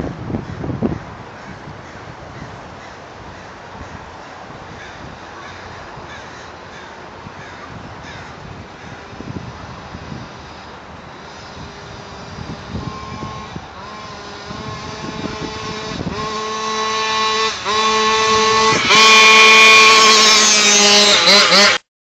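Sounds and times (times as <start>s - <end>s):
small two-stroke engine revving: 8.8s - 21.9s.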